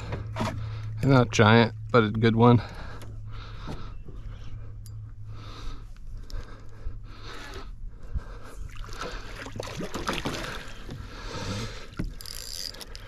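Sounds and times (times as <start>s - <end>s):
steady low hum: 0.0s - 13.0s
water splashing and trickling: 8.4s - 13.0s.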